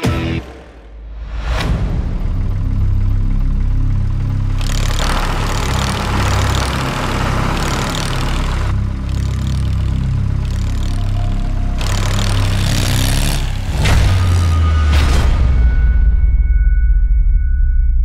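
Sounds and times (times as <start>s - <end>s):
tractor engine running: 2.0s - 15.9s.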